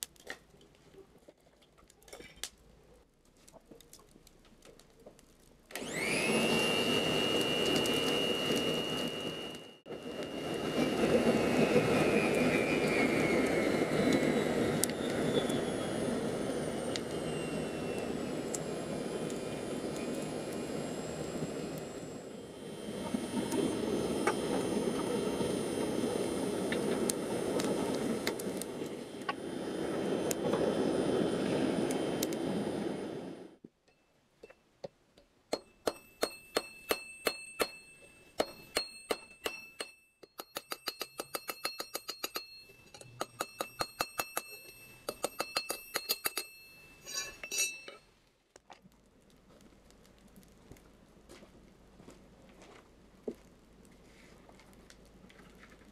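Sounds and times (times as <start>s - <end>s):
electric blower rushing: 5.7s - 33.6s
hammer ringing on anvil: 35.5s - 48.0s.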